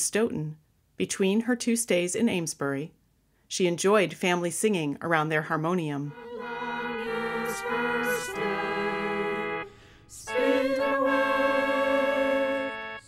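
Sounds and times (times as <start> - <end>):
voices singing in harmony: 6.0 - 13.0.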